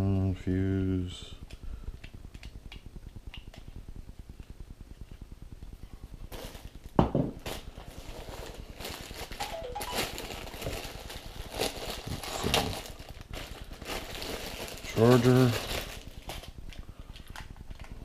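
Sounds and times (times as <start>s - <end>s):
plastic bag crinkling: 6.3s - 18.0s.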